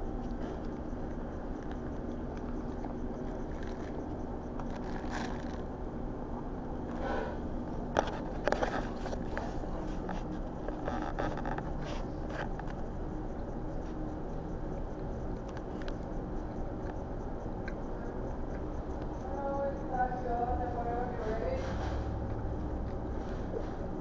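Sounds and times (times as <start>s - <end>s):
low room hum: 0.0s - 24.0s
paper wrappers crinkling: 4.6s - 5.7s.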